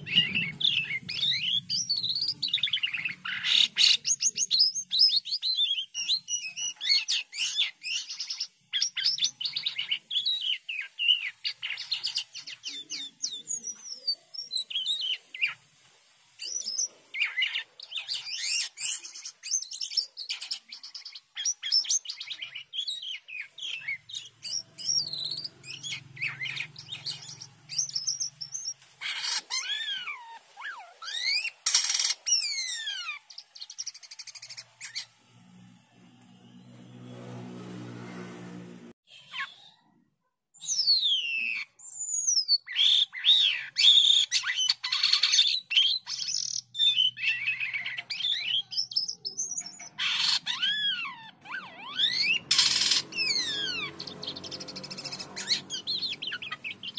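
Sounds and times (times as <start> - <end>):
starling singing: 0.0 - 15.7, 16.4 - 36.8, 40.6 - 56.9.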